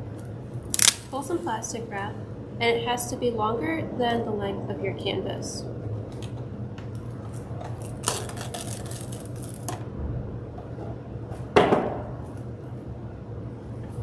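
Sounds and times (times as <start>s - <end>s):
plastic wrap crinkling and tearing: 0.7s - 1.2s, 7.8s - 9.7s.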